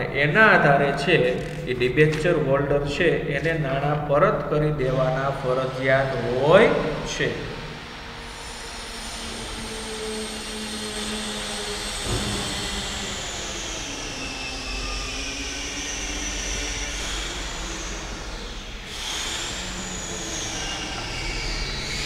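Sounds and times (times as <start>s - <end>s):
mechanical drone with low hum: 0.0s - 22.0s
thin high whine: 0.0s - 22.0s.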